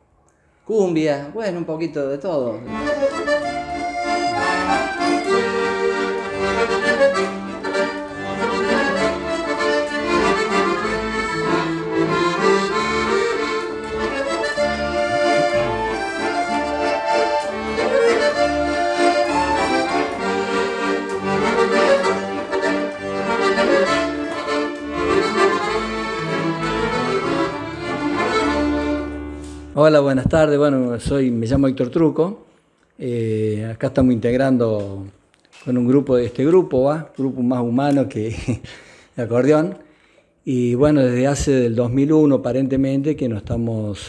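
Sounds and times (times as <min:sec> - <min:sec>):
accordions playing chords: 0:02.5 - 0:29.8.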